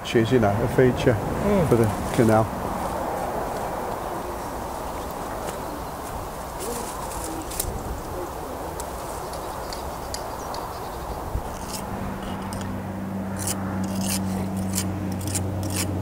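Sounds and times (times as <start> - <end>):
outdoor background noise: 0.0 - 16.0
steady low hum: 0.0 - 16.0
tool scraping mortar joints: 13.4 - 15.9.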